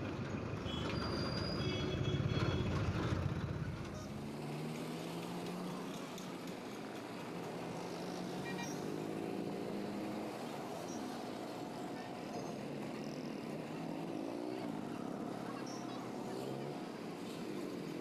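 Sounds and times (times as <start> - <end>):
road noise: 0.0 - 18.0.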